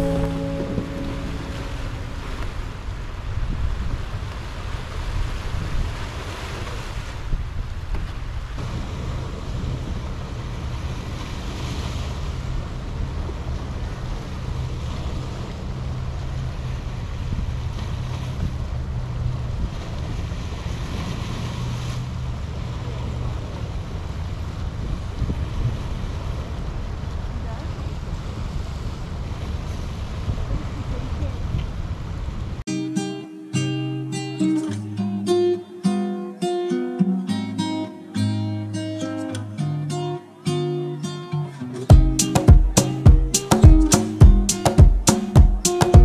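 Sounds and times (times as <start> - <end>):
waves washing over rocks: 0.0 - 32.6
wind rumbling on microphone: 0.0 - 32.6.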